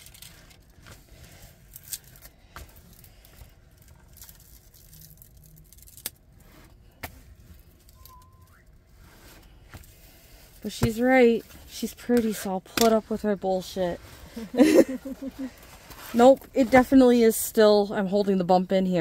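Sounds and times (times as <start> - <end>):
faint rising squeak: 7.9 - 8.8.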